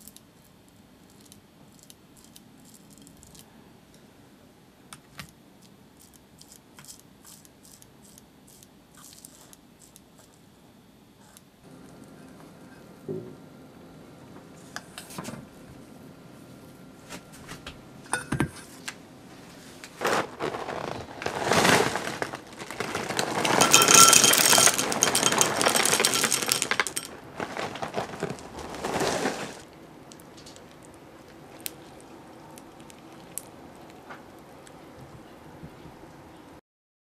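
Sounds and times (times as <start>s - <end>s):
cereal pouring into glass bowl: 20.0s - 30.8s.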